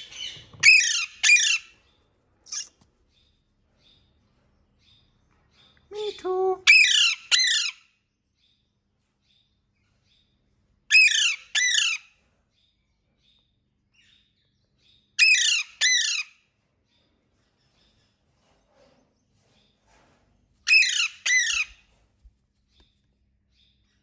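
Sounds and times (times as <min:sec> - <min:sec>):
parakeet squawking: 0:00.6 - 0:01.7, 0:02.5 - 0:02.7, 0:20.7 - 0:21.8.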